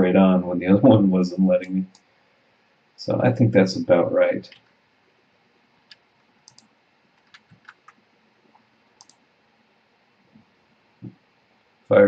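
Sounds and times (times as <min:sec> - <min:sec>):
computer mouse clicks: 0:05.9 - 0:09.2.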